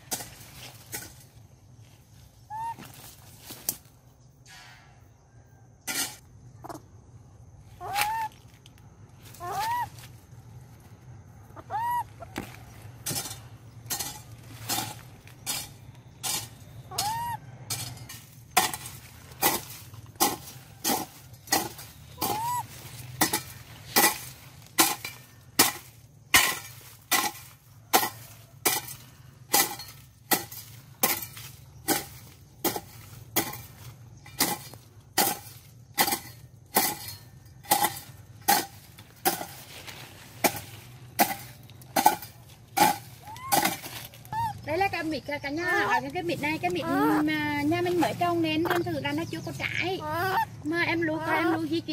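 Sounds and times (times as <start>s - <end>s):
hoe chopping into soil: 12.3s - 44.5s.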